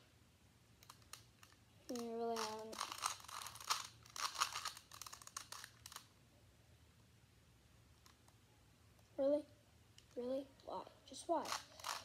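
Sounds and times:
puzzle cube clicking and rattling: 0:00.8 - 0:06.1, 0:11.4 - 0:12.0.

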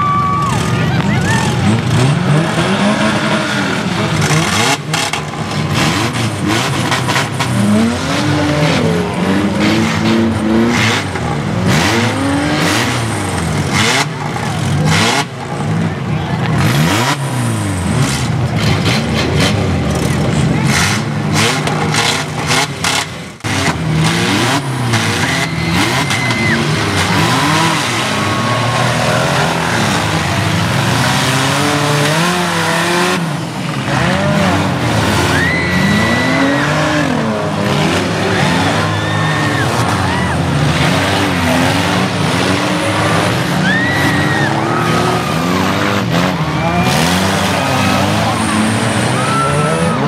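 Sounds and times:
car engines revving: 0:00.0 - 0:50.0
high squealing tones: 0:25.0 - 0:30.2.

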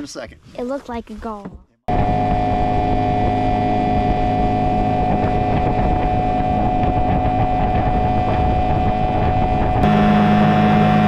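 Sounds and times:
wind buffeting microphone: 0:01.9 - 0:10.1
outboard motor running: 0:01.9 - 0:11.0.

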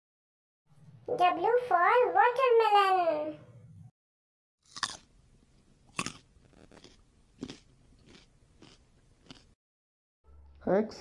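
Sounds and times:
child chewing watermelon: 0:04.7 - 0:09.6.

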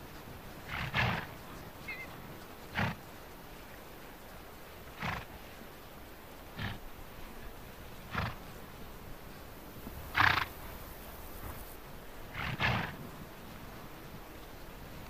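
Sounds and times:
horses grunting: 0:00.6 - 0:03.1, 0:04.9 - 0:05.4, 0:06.5 - 0:06.9, 0:08.0 - 0:08.6, 0:09.8 - 0:13.1.

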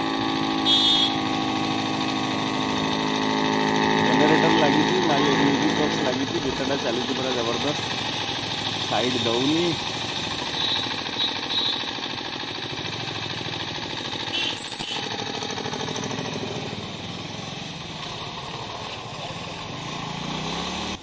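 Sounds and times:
motorcycle engine running: 0:00.0 - 0:21.0
road and wind noise: 0:15.0 - 0:21.0.

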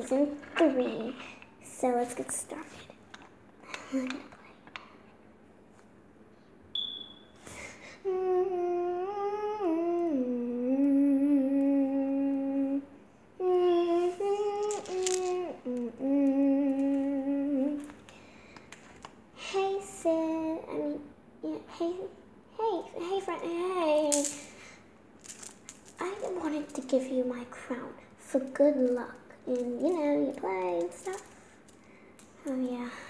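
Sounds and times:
girl humming a slow tune: 0:07.5 - 0:18.0.

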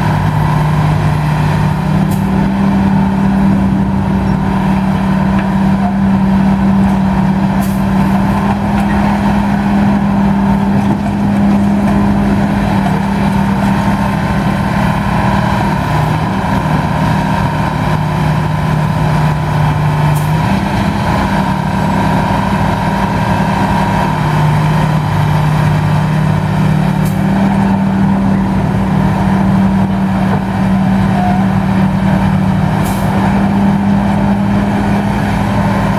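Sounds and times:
excavator engine running: 0:00.0 - 0:35.9.

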